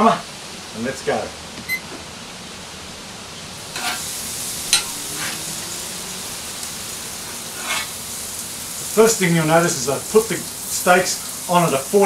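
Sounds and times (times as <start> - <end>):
steaks sizzling on grill: 2.5 - 12.0.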